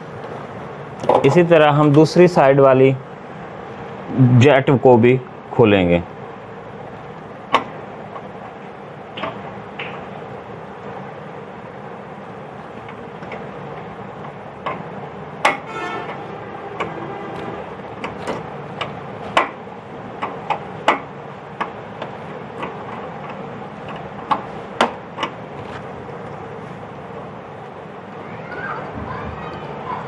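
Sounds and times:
steady background hum: 0.0s - 30.0s.

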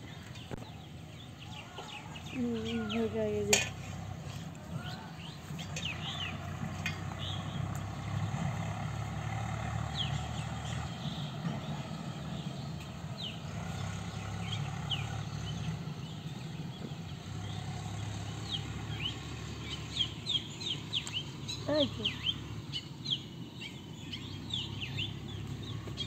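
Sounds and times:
bird chirps: 9.9s - 26.0s.

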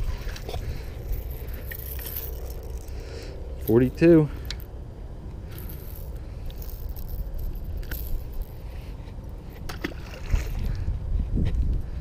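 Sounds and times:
metallic hooks jingling: 0.5s - 3.0s, 5.5s - 8.8s
wind rumble on microphone: 5.4s - 12.0s.

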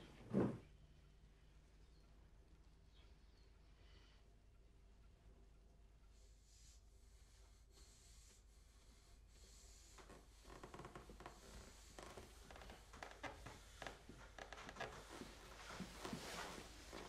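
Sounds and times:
soft taps and rustles: 10.0s - 17.0s.

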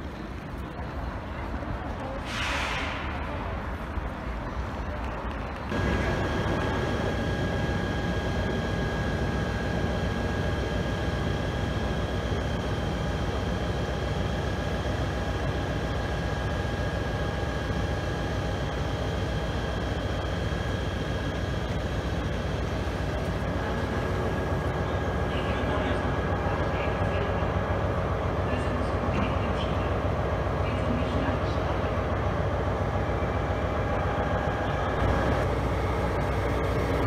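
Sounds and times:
electric trains whining: 0.0s - 37.0s.

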